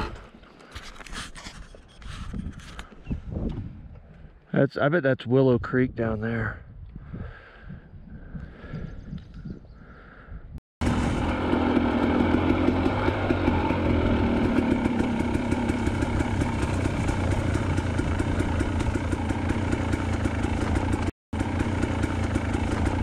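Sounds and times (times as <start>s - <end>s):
dirt bike engine running: 10.8s - 23.0s.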